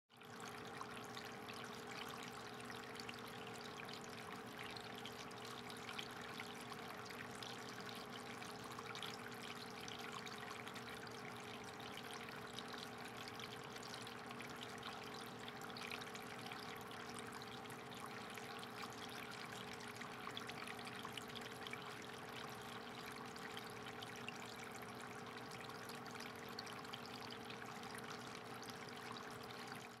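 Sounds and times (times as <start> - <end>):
aquarium water trickling: 0.1 - 30.0.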